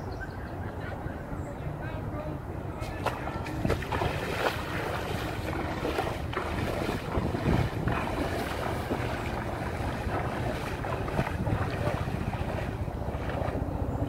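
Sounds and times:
wind buffeting microphone: 0:02.5 - 0:14.0
water sloshing around legs: 0:02.8 - 0:14.0.

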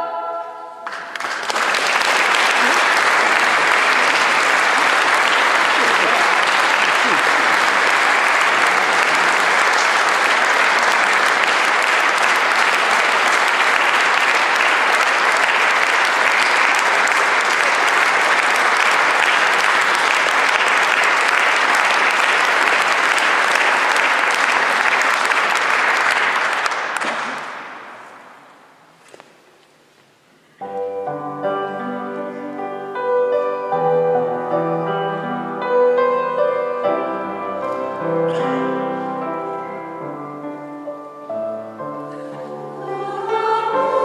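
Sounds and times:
audience applauding: 0:00.8 - 0:28.2.

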